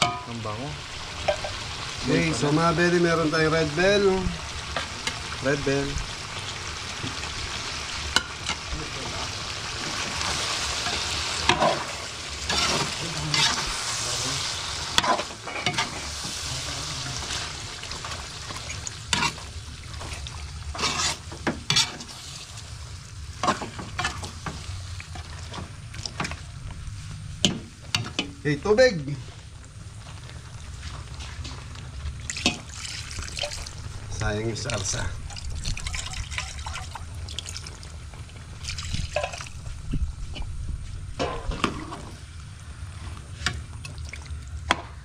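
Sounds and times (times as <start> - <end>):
food sizzling in pot: 0.0 - 45.0
utensil scraping and knocking pot: 20.0 - 22.1.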